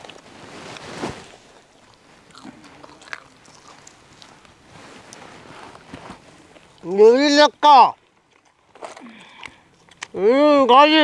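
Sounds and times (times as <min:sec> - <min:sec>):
people chewing crunchy chicken: 0:01.6 - 0:04.6, 0:08.0 - 0:10.2.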